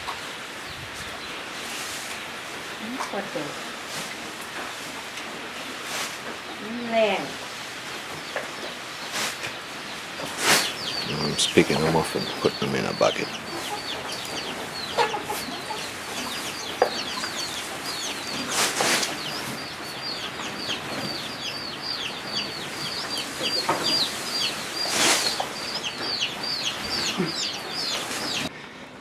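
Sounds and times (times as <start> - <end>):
rustle of leafy plants: 0.1 - 13.8, 15.0 - 20.0, 23.1 - 25.8
chicks peeping: 7.8 - 28.5.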